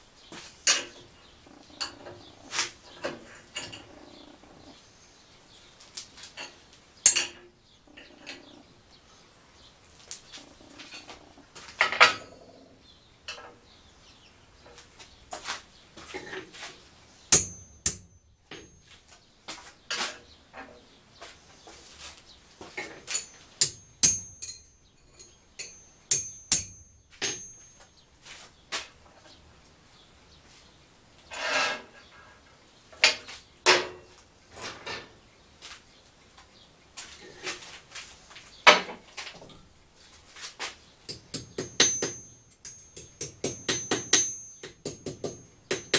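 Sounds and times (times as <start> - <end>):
metal tools knocking and clinking: 6.4 - 7.5, 22.8 - 27.9, 41.1 - 45.9
metal-on-metal strikes ringing: 17.4 - 18.8, 23.1 - 27.9, 41.1 - 45.9.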